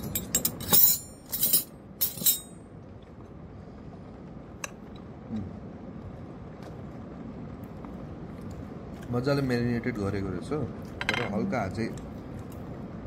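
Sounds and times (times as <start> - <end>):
metal cutlery clinking on a dish: 0.0 - 2.6.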